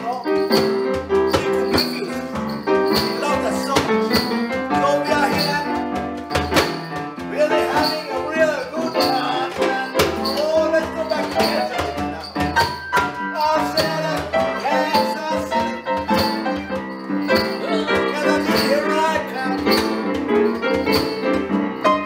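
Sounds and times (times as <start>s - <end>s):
upright piano bouncy beat: 0.0s - 22.0s
voices singing along: 7.3s - 12.1s.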